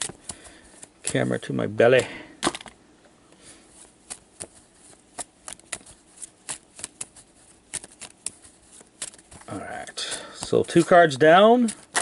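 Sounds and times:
playing cards snapping and tapping: 0.0s - 1.2s, 4.0s - 9.5s, 11.6s - 12.0s.

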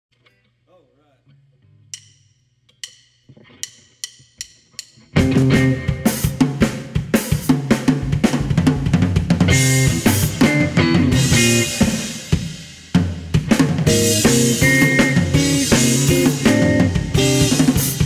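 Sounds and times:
drum kit playing: 1.9s - 18.0s
electric guitar strumming chords: 5.1s - 6.6s, 8.0s - 12.5s, 13.6s - 18.0s.

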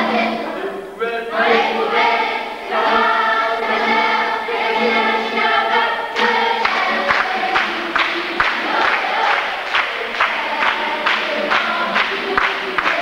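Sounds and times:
acoustic guitar: 0.0s - 13.0s
children singing in chorus: 0.0s - 13.0s
hands clapping in time: 6.2s - 13.0s.

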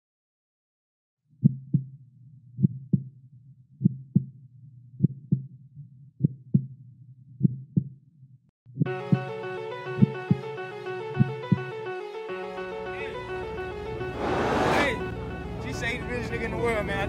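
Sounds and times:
heartbeat double thumps: 1.4s - 2.0s, 2.6s - 3.1s, 3.8s - 4.4s, 5.0s - 5.5s, 6.2s - 6.8s, 7.4s - 8.0s
low hum: 14.1s - 15.1s.

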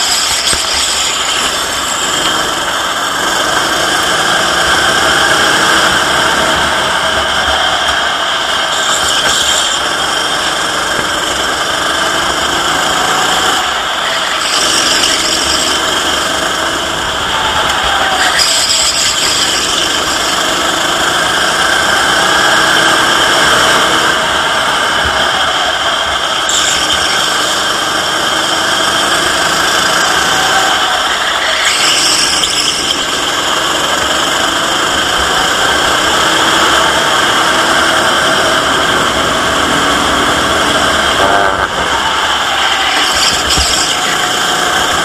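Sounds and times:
short high squeal: 0.0s - 2.3s, 8.7s - 10.4s, 13.5s - 16.4s, 17.6s - 20.6s, 26.4s - 27.7s, 29.8s - 33.6s, 41.2s - 44.9s
racing kart engine: 0.0s - 45.0s.

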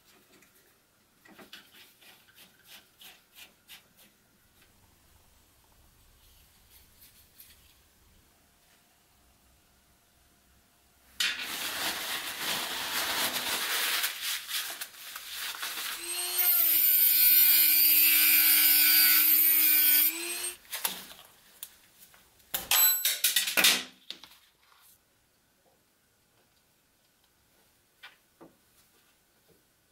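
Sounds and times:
rotary tool steady whine: 16.0s - 20.6s.

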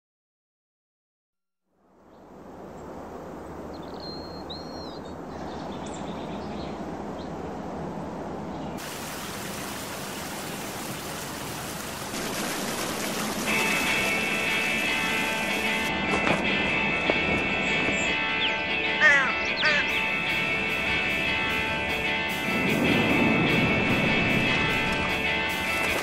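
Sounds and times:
bird chirps: 3.7s - 6.8s
water falling over stones: 8.8s - 15.9s, 24.8s - 26.0s.

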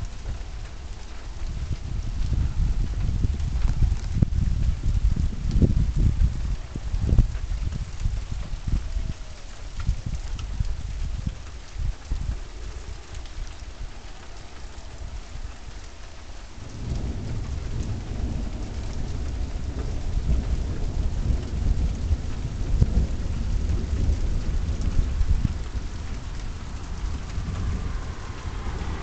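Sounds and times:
steady rain: 0.0s - 29.0s
thunder rumbling: 0.0s - 29.0s.

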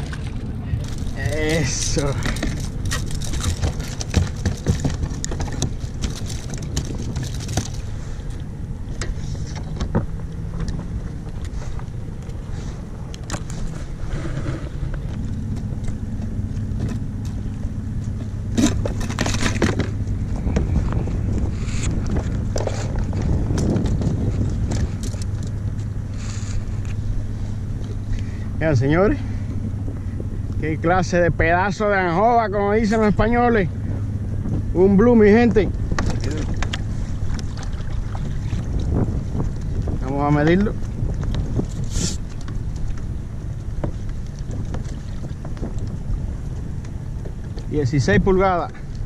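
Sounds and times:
fishing gear knocking and rattling: 0.0s - 12.4s, 14.9s - 26.0s, 35.8s - 47.7s
low boat engine hum: 0.0s - 49.0s
wind buffeting microphone: 0.0s - 49.0s.

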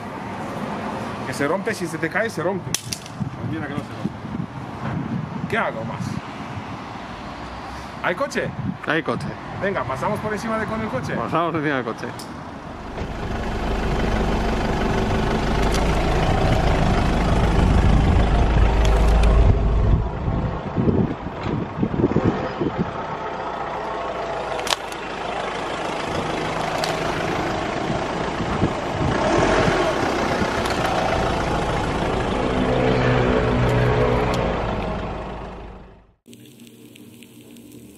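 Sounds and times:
car engine at low revs: 12.8s - 21.1s, 21.8s - 32.8s.

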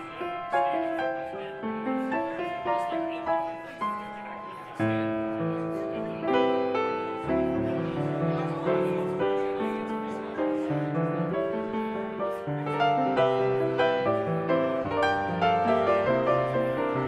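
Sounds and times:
slow piano chords: 0.0s - 17.0s.

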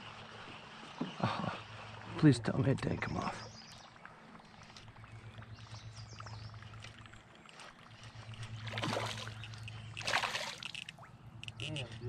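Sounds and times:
steady low hum: 0.0s - 12.0s
fish splashing in water: 3.6s - 11.6s.

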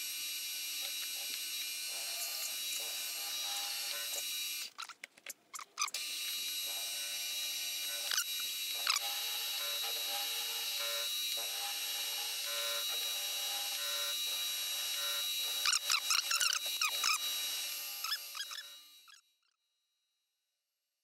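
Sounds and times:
milling machine spindle humming: 0.4s - 4.7s, 6.0s - 18.9s
short squeaks: 4.6s - 6.0s, 18.0s - 19.2s.

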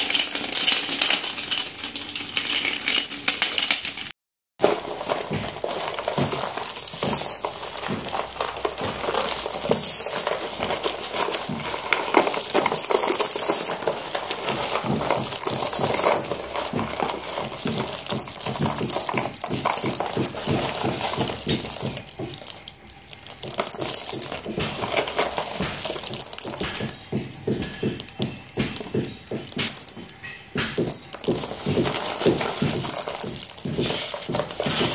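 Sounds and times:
slate pencils clinking and rattling: 0.0s - 34.9s.

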